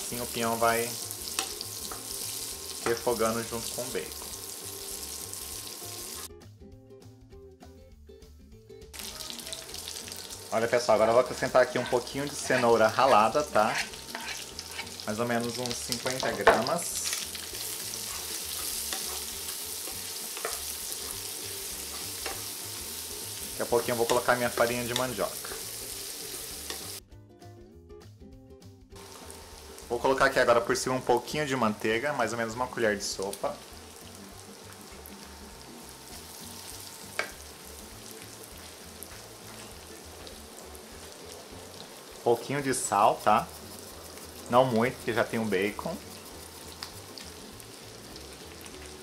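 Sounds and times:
food sizzling in a frying pan: 0.0 - 6.3, 8.9 - 27.0, 29.0 - 49.0
wooden spatula stirring: 11.0 - 15.0.

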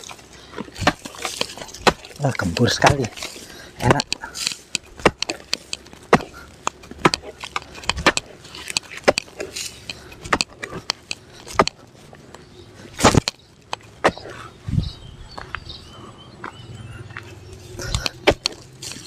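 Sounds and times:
hoe chopping into soil: 0.0 - 11.8, 12.9 - 14.3, 17.8 - 19.0.

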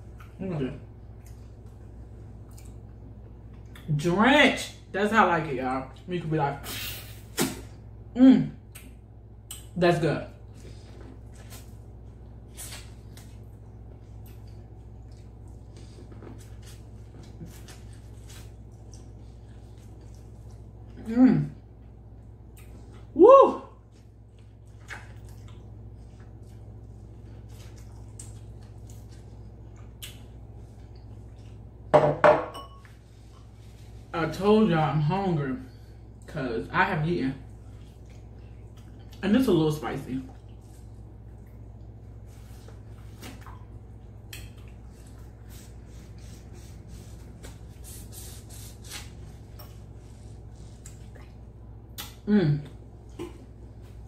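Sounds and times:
steady low hum: 0.0 - 54.0
wet chewing and lip smacks: 1.0 - 3.9, 10.8 - 21.0, 22.1 - 23.1, 23.9 - 31.8, 37.5 - 39.2, 40.3 - 45.4, 50.6 - 52.2
wet eating smacks and slurps: 23.9 - 31.7, 40.3 - 52.2.

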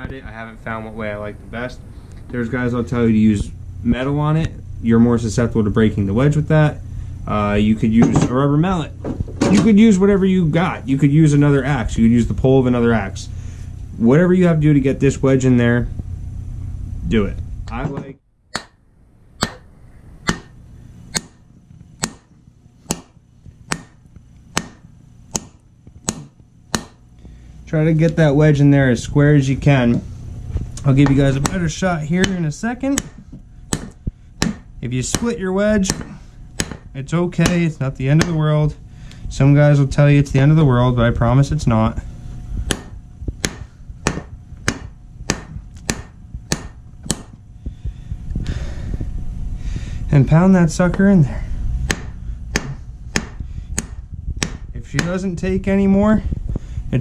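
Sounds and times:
wooden mallet knocking on wood: 25.4 - 27.0, 32.2 - 37.6, 42.7 - 47.4, 51.9 - 55.2.

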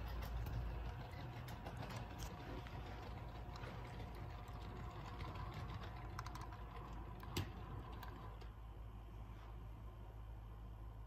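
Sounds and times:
wheels clicking over track joints: 0.0 - 8.5
low hum of model train: 0.0 - 11.0.

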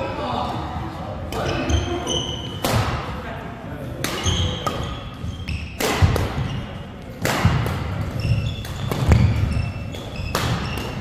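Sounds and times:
sneaker squeaks: 1.3 - 2.7, 4.1 - 7.0, 7.8 - 11.0
racket smacking shuttlecock: 2.5 - 3.0, 4.0 - 11.0.

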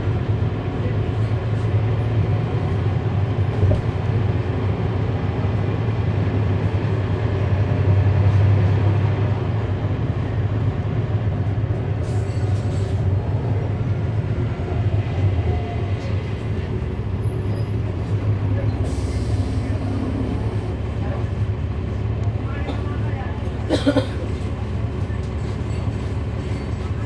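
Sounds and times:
bus diesel engine rumbling: 0.0 - 27.0.

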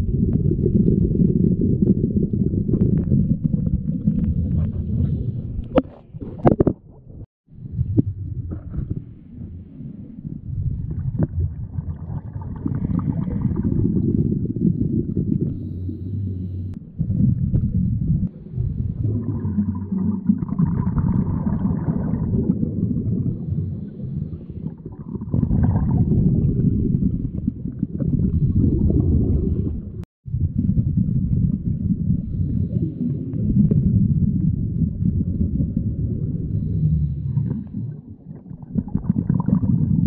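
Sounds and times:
underwater bubbles gurgling: 0.0 - 40.0.

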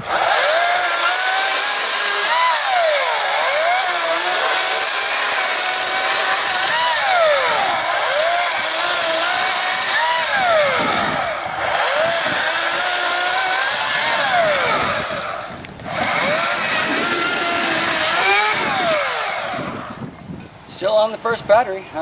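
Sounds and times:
chainsaw cutting log: 0.0 - 20.2.

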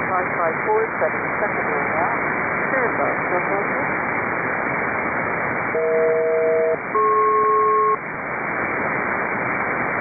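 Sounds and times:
paired steady radio tones: 0.0 - 4.1, 5.5 - 8.1
radio static hiss: 0.0 - 10.0.

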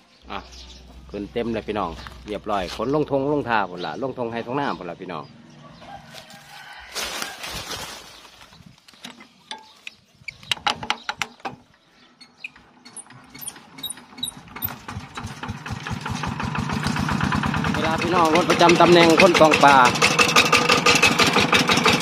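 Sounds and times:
diesel engine firing: 0.3 - 3.7, 12.2 - 22.0
metal clicks and clanks: 8.9 - 15.4.

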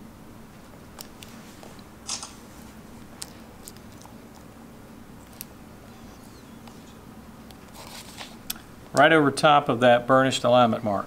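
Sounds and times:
steady low hum: 0.0 - 11.0
tape rustling: 5.2 - 8.6.

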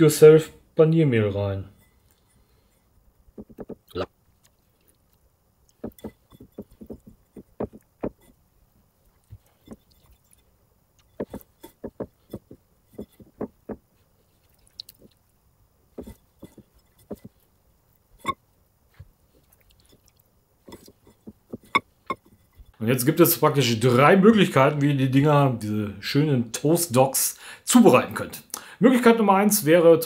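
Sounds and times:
soft taps: 3.4 - 3.8
crunchy breadcrumb crackles: 14.3 - 15.4.

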